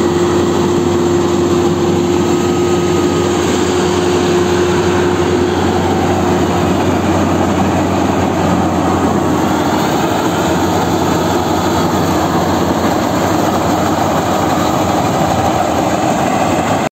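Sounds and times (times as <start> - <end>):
combine harvester engine drone: 0.0 - 16.9
whir of threshing machinery: 0.0 - 16.9.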